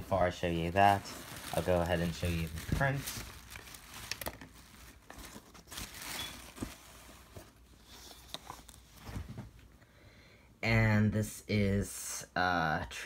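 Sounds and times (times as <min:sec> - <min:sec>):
paper rustling and crinkling: 0:00.6 - 0:09.6.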